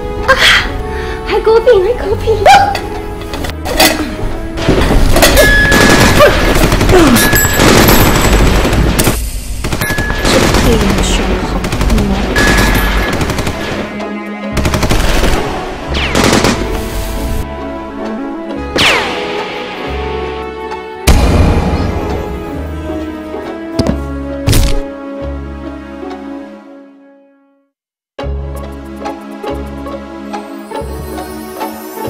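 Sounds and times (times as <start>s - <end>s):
action music: 0.0s - 26.3s
machine-gun fire: 4.6s - 13.9s, 14.6s - 16.9s.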